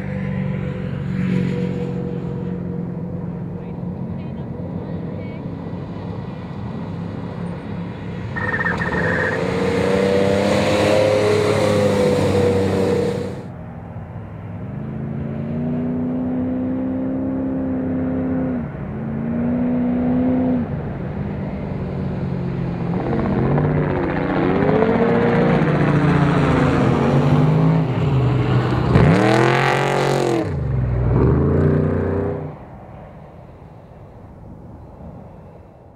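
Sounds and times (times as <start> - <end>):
race truck engines revving: 0.0 - 13.5, 14.6 - 32.9
truck passing with pitch drop: 0.0 - 16.7, 17.3 - 35.9.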